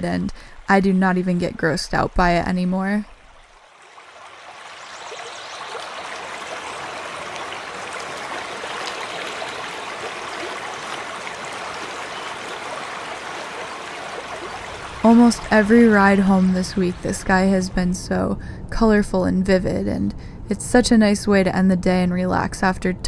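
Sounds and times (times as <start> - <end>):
river flowing over stones: 3.1 - 17.1.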